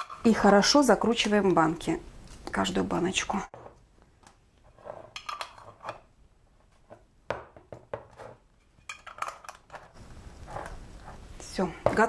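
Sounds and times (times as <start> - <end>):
metal lids screwed onto jars: 5.1 - 6.0, 8.9 - 9.9.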